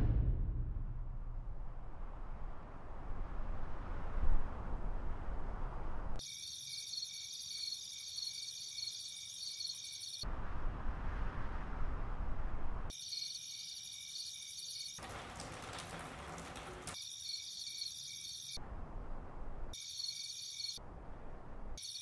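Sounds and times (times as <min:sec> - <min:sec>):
low rumble: 0:00.0 - 0:06.2, 0:10.3 - 0:12.9
crickets chirring: 0:06.2 - 0:10.2, 0:12.9 - 0:15.0, 0:16.2 - 0:18.6, 0:19.8 - 0:20.8, 0:21.8 - 0:22.0.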